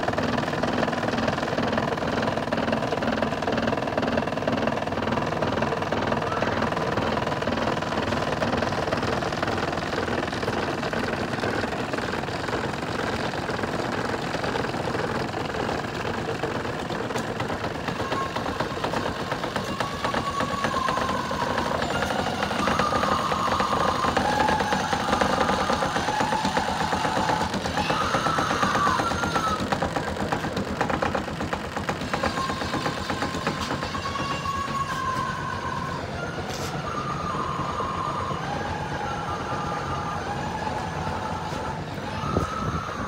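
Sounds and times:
small motor rattling: 0.0s - 43.0s
wavering high tone: 17.8s - 29.9s, 32.0s - 43.0s.

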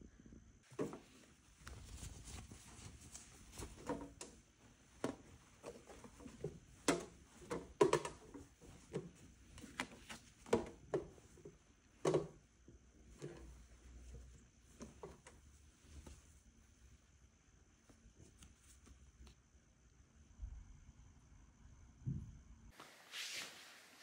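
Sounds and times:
towels and paper tags rustling: 0.6s - 17.1s, 17.7s - 19.4s.

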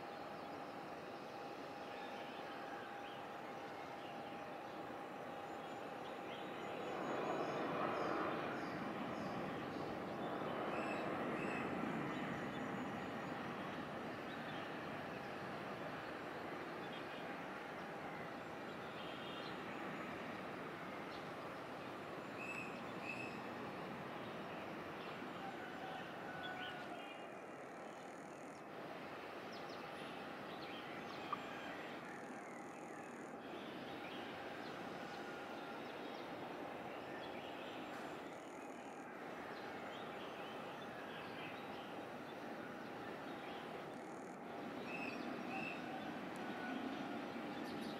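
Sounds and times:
distant outdoor hum: 0.0s - 47.9s
jet airliner engine roar: 0.0s - 47.9s.

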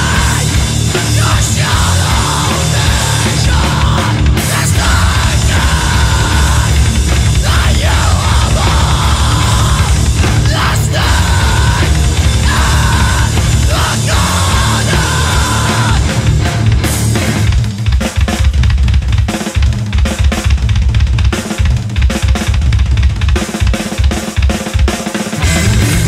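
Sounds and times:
low bass: 0.0s - 17.7s, 25.4s - 26.0s
drums: 0.0s - 26.0s
metalcore band playing: 0.0s - 26.0s.

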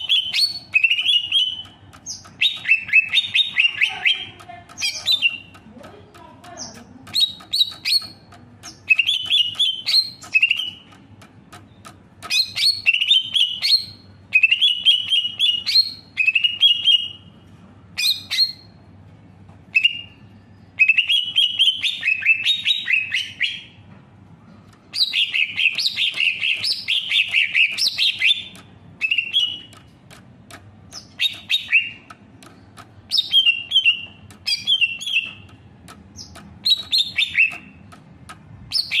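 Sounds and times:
bird singing chirping whistles: 0.0s - 5.5s, 7.1s - 10.8s, 12.3s - 17.2s, 18.0s - 18.8s, 19.7s - 23.8s, 24.9s - 29.8s, 30.9s - 32.1s, 33.1s - 35.5s, 36.2s - 37.8s, 38.7s - 39.0s.

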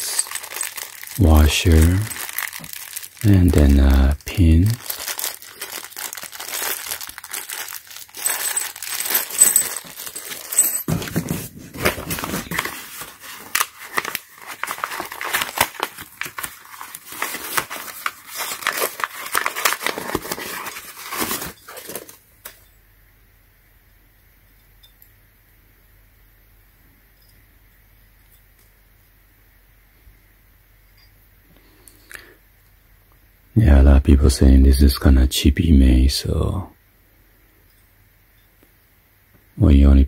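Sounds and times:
paper crumpling and tearing: 0.0s - 22.2s
plastic bag crinkling: 0.0s - 22.2s
faint low hum: 0.0s - 40.0s.

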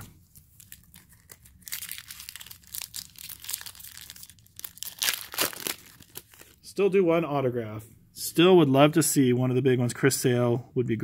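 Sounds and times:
foil wrapper tearing and crinkling: 0.4s - 6.6s.

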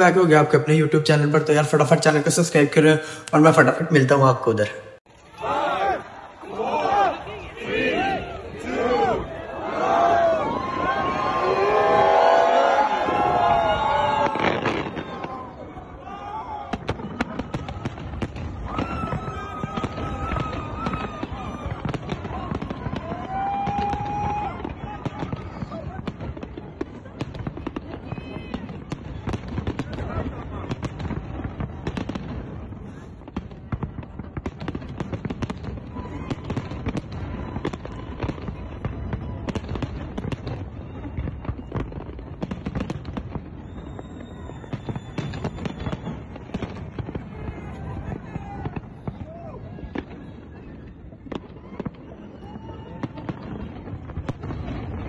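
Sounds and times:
fireworks popping and crackling: 8.2s - 55.0s.

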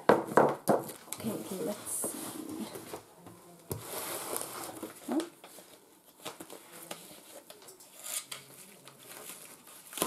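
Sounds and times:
paper and cardboard rustling: 3.7s - 10.0s.

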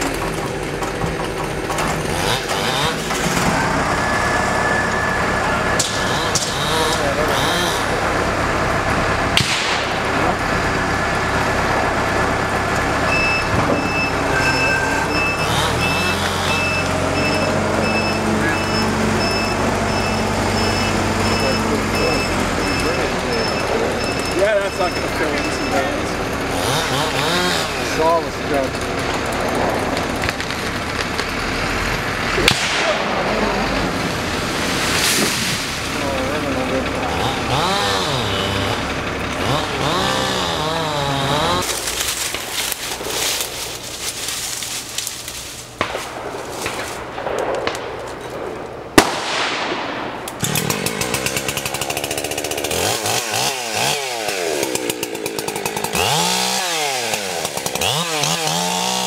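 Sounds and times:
truck engine idling: 0.0s - 59.0s
vehicle reversing beeps: 3.5s - 5.9s, 13.0s - 26.0s
tree trunk cracking: 26.7s - 48.3s, 50.3s - 59.0s
falling tree crown rustling: 33.8s - 36.1s, 41.5s - 53.5s.

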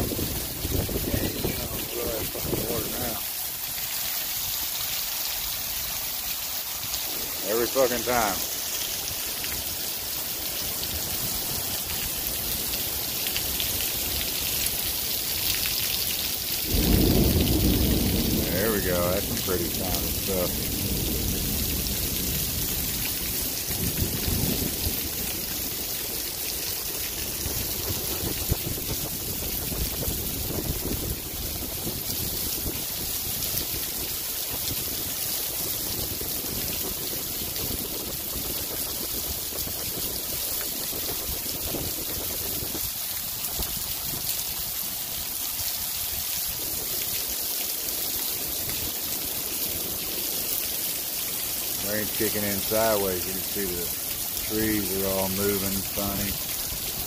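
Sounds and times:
heavy rain falling: 0.0s - 57.0s
water dripping off roof edge: 0.1s - 57.0s.

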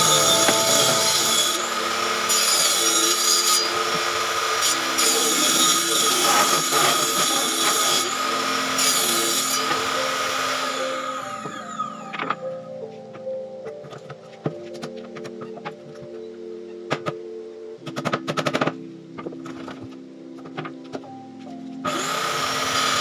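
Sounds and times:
power tool running on wood: 0.0s - 12.4s, 21.8s - 23.0s.

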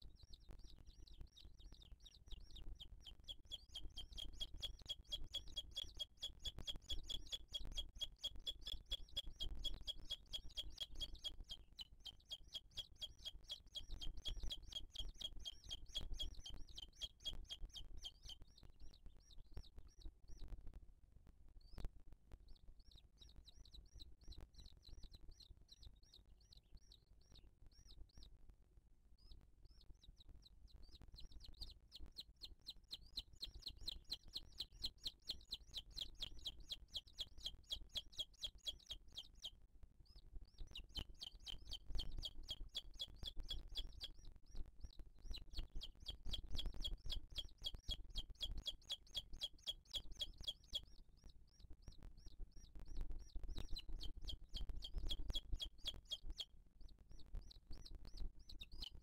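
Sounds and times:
eagle chick begging peeps: 2.8s - 18.4s, 31.2s - 39.5s, 40.5s - 44.3s, 45.3s - 51.0s, 53.2s - 56.5s.

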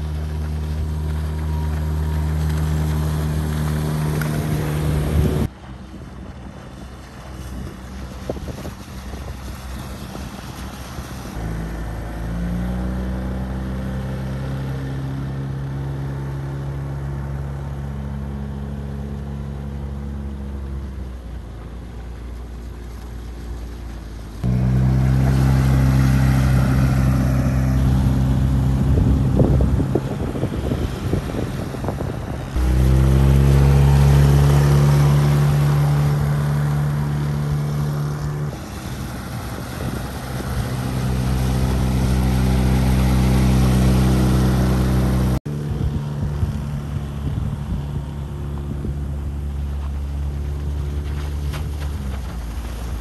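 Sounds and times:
wind on microphone: 0.0s - 11.6s, 24.4s - 53.0s
outboard motor at high throttle: 0.0s - 53.0s.

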